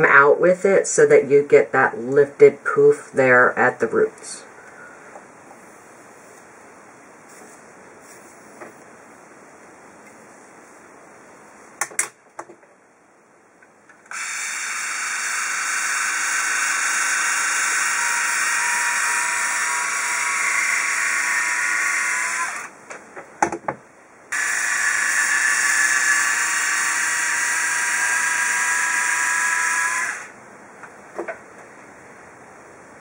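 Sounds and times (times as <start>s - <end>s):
hair styler barrel whirring: 14.1s - 22.7s, 24.3s - 30.4s.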